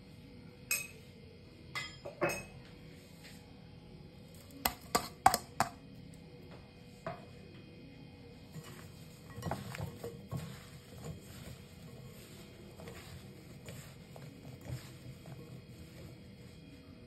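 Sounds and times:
utensils clinking against glass bowl: 0:00.7 - 0:01.0, 0:01.8 - 0:02.6.

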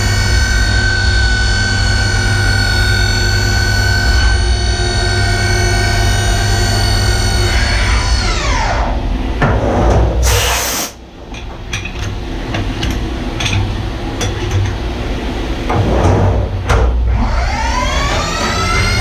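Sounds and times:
machine low hum: 0:00.0 - 0:10.4, 0:11.0 - 0:19.0
air hiss blowing chips: 0:10.2 - 0:11.0
milling spindle whining down: 0:17.1 - 0:19.0.

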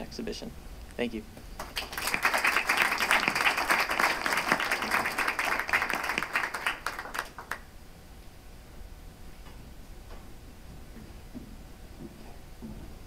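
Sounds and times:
audience applauding: 0:01.6 - 0:07.7.

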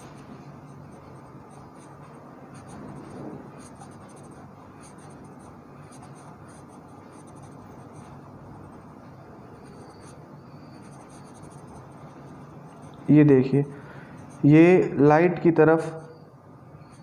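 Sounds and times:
pencil scratching on paper: 0:00.0 - 0:08.9, 0:09.6 - 0:13.0.

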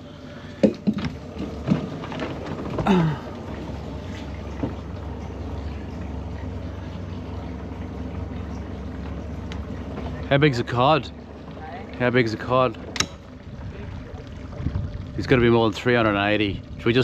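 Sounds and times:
low rumble: 0:00.0 - 0:17.0
person grunting: 0:02.8 - 0:03.3.

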